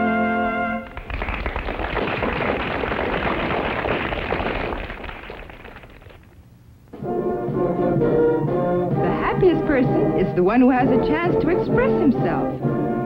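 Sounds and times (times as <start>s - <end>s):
music: 0.0s - 1.0s, 6.9s - 13.0s
audience applauding: 0.8s - 6.4s.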